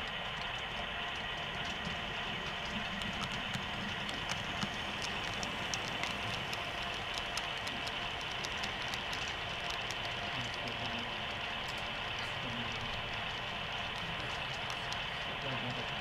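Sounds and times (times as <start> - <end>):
model train rolling past: 0.0 - 16.0
wheels clicking over track joints: 0.0 - 16.0.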